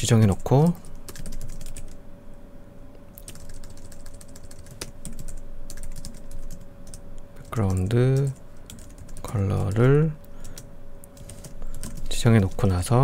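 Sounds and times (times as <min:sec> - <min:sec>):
faint steady hum: 0:00.0 - 0:13.0
typing on computer keyboard: 0:00.3 - 0:02.0, 0:03.2 - 0:09.9, 0:11.2 - 0:12.8.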